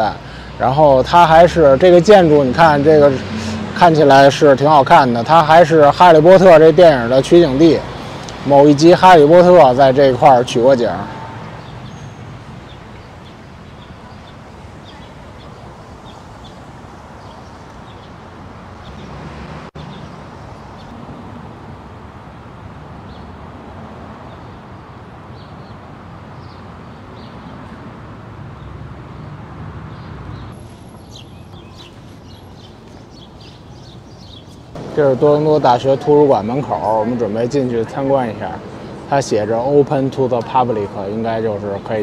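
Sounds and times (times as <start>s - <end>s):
distant traffic or wind rush: 0.0s - 42.0s
small birds chirping: 11.4s - 21.0s, 24.2s - 27.6s, 29.9s - 42.0s.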